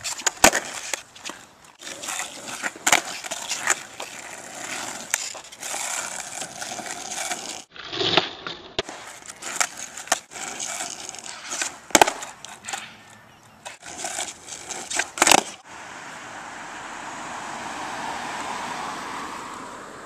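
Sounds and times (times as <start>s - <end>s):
skateboard clacks: 0.0s - 15.6s
skateboard wheels rolling on asphalt: 0.0s - 20.0s.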